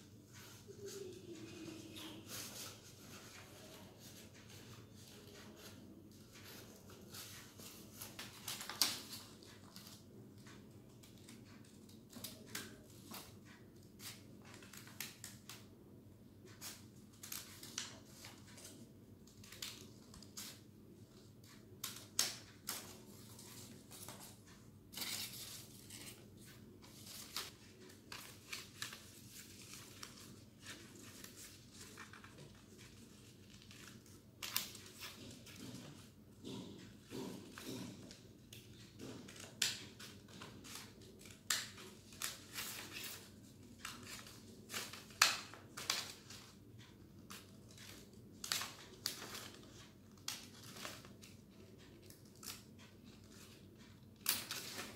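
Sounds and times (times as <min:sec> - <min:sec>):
paper rustling: 0:21.4 - 0:36.1.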